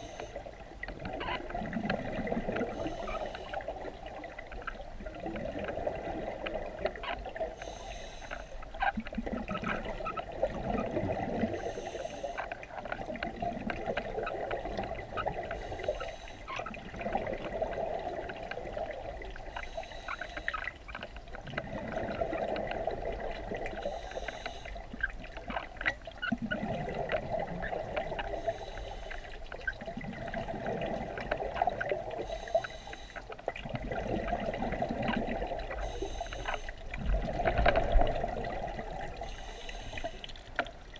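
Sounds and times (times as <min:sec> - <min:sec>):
air hissing through regulator: 0:00.0 - 0:00.4, 0:02.7 - 0:03.7, 0:07.6 - 0:08.6, 0:11.5 - 0:12.4, 0:15.6 - 0:16.5, 0:19.6 - 0:20.6, 0:23.8 - 0:24.8, 0:28.4 - 0:29.4, 0:32.2 - 0:33.2, 0:35.8 - 0:36.8, 0:39.2 - 0:40.3
bubbling of exhaled air: 0:00.0 - 0:08.2, 0:09.0 - 0:12.4, 0:13.0 - 0:20.8, 0:21.4 - 0:25.4, 0:26.2 - 0:40.4.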